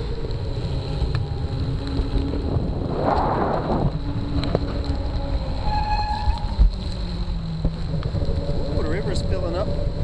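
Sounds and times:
wind buffeting microphone: 0:00.0 - 0:10.0.

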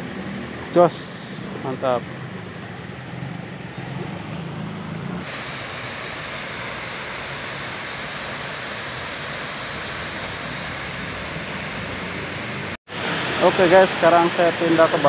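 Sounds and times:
water rushing over weir: 0:05.1 - 0:15.0.

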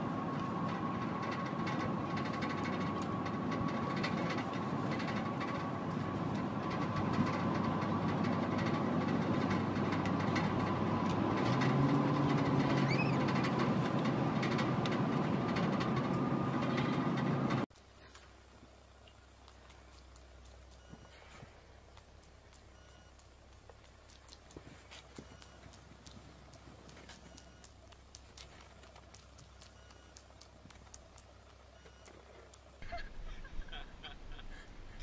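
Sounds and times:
short rising squeak: 0:11.6 - 0:14.8.

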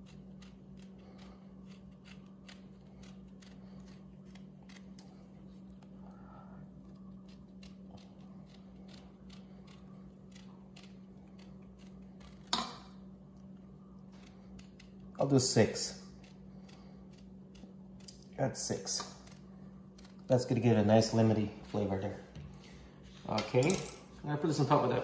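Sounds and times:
knife cutting lemon peel: 0:00.0 - 0:05.0
steady low hum: 0:00.0 - 0:25.0.

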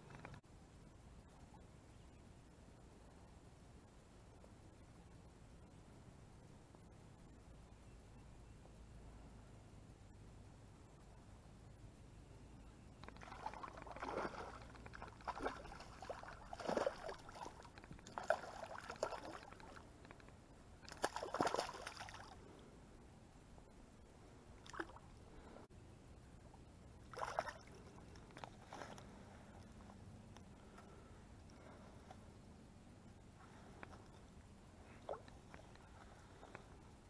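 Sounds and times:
fish splashing at water surface: 0:13.0 - 0:19.8, 0:20.8 - 0:22.4.

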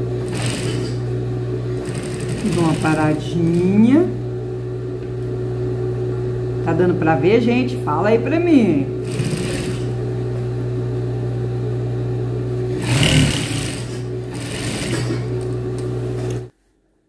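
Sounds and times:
sewing machine stitching: 0:00.2 - 0:01.0, 0:01.8 - 0:03.7, 0:09.0 - 0:10.0, 0:12.7 - 0:15.5.

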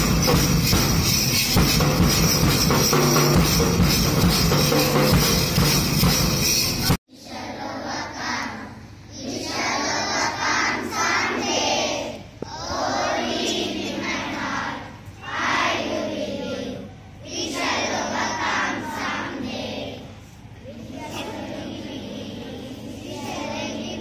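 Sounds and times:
children singing in unison: 0:07.1 - 0:24.0.

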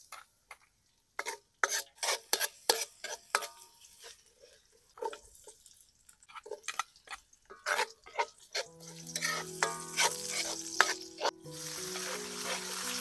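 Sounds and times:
food sizzling: 0:00.0 - 0:13.0
utensil scraping a pan: 0:01.2 - 0:13.0
soft background music: 0:07.6 - 0:13.0.

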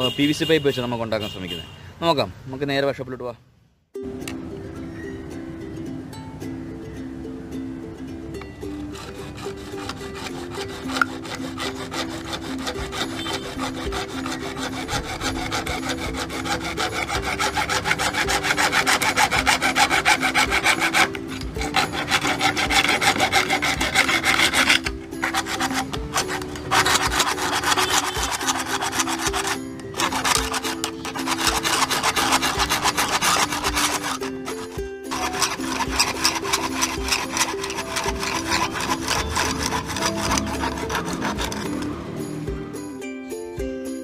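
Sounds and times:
background music: 0:04.0 - 0:44.0
hacksaw sawing plastic pipe: 0:08.7 - 0:42.0.

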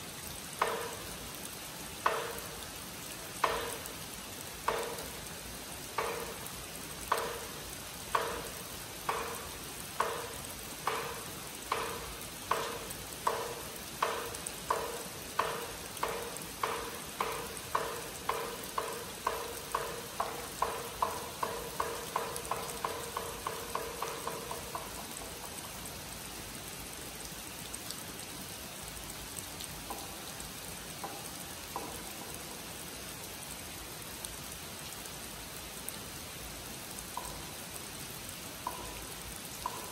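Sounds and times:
heavy rain on pond and foliage: 0:00.0 - 0:39.9
wooden clapper knocking: 0:00.6 - 0:01.1, 0:02.0 - 0:02.6, 0:03.4 - 0:04.0, 0:04.6 - 0:05.2, 0:05.9 - 0:25.8, 0:29.9 - 0:30.3, 0:31.0 - 0:32.4, 0:37.2 - 0:37.5, 0:38.6 - 0:39.9.

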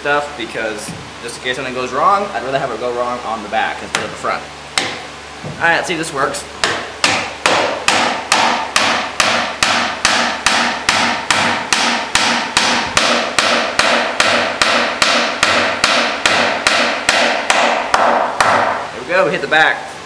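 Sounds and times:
hammer blows on wooden pin: 0:06.6 - 0:18.9.

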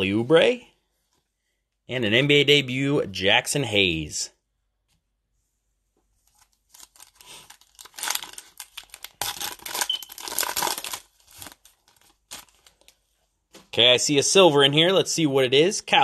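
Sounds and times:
wrapper tearing and crinkling: 0:06.3 - 0:13.0.

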